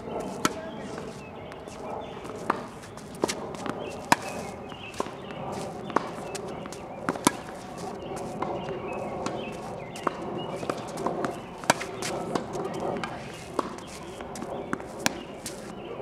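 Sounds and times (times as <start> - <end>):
tennis balls bouncing on hard court: 0.0 - 15.7
tennis balls struck by rackets: 0.0 - 15.7.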